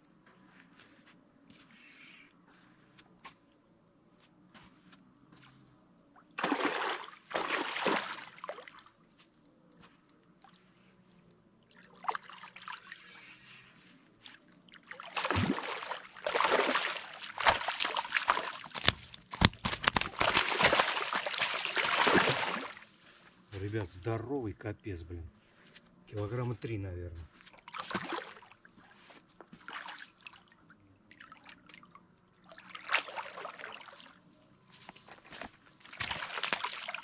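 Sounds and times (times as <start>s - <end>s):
fish thrashing and splashing: 6.4s - 8.8s, 14.6s - 22.8s, 27.6s - 28.5s, 29.5s - 34.2s, 35.1s - 37.0s.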